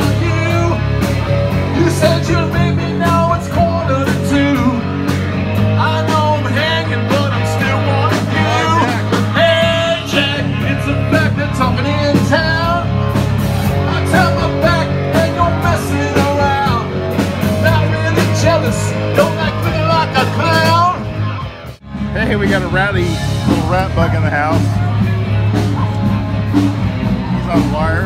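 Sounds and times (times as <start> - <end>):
rock and roll song: 0.0 - 28.0.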